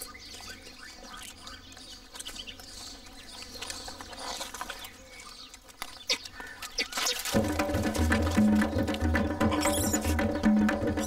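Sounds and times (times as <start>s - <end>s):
faint bird chirps: 9.4s - 11.0s.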